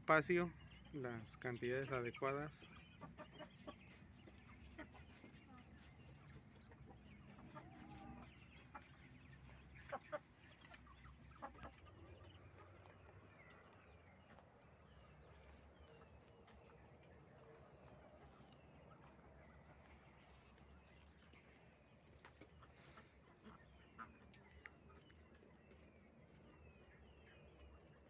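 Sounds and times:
chicken clucks and calls: 0.0s - 28.0s.

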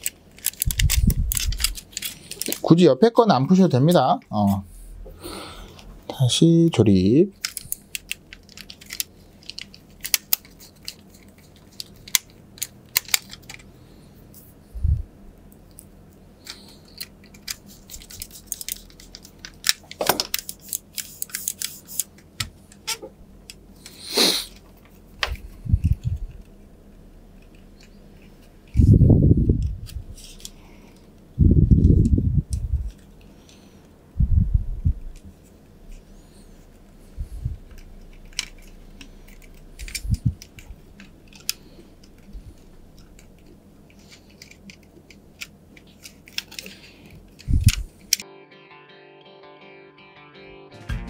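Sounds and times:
plastic clicks and scrapes: 37.7s - 48.2s.

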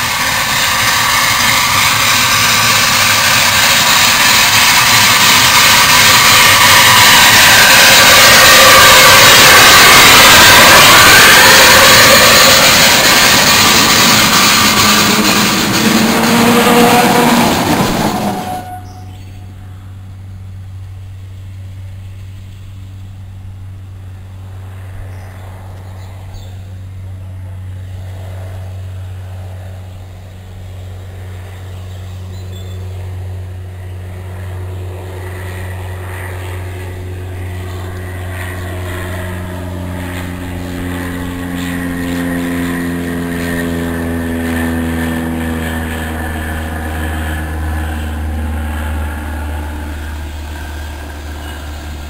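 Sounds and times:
engine note sliding down in pitch: 0.0s - 19.7s, 33.8s - 52.0s
low engine drone: 0.0s - 52.0s.

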